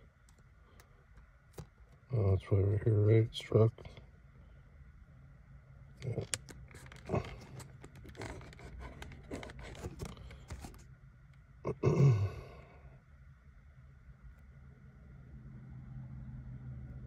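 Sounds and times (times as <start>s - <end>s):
man grunting: 11.7s - 12.6s.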